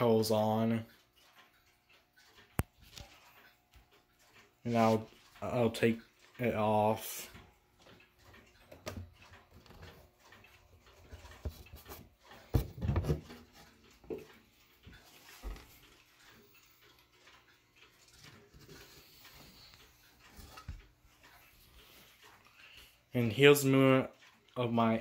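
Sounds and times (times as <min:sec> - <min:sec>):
wood knocking and scraping: 0:11.4 - 0:14.2.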